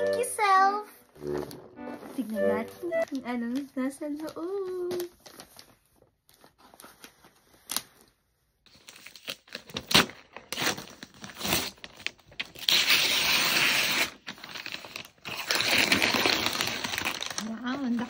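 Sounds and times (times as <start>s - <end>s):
wrapping paper tearing: 8.7s - 18.0s.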